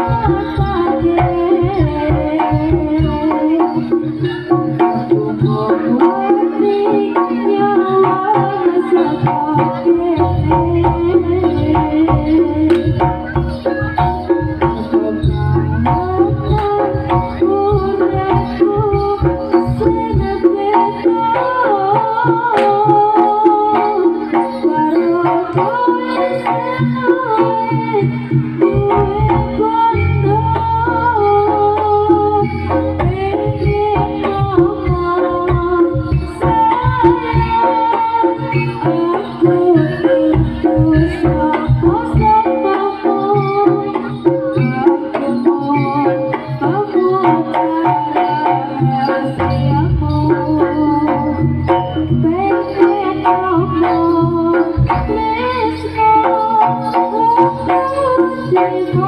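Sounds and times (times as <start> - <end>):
wavering melody line: 0.0 - 22.2
hand drums beating: 0.0 - 59.0
sustained melodic gamelan tones: 0.0 - 59.0.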